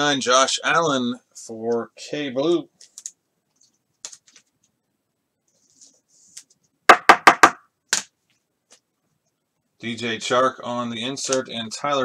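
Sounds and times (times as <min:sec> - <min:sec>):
faint handling sounds: 0:02.5 - 0:04.8, 0:05.4 - 0:06.8
sharp hard knocks: 0:06.9 - 0:07.6.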